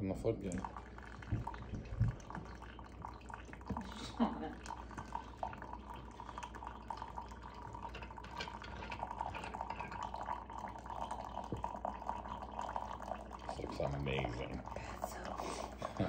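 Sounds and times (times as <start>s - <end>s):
coffee trickling and dripping: 0.0s - 16.0s.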